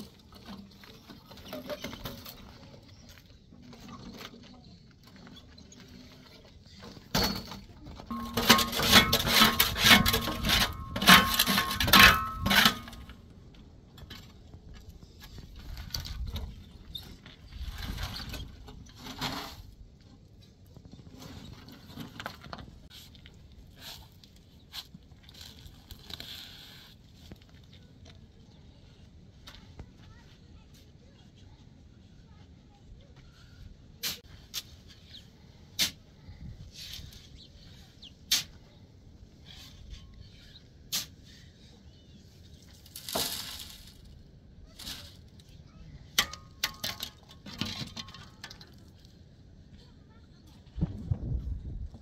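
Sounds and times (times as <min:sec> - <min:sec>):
shovel scraping metal wheelbarrow: 0:06.9 - 0:13.2, 0:15.6 - 0:19.8, 0:38.3 - 0:38.6, 0:39.4 - 0:41.5, 0:42.7 - 0:45.5, 0:46.2 - 0:48.6.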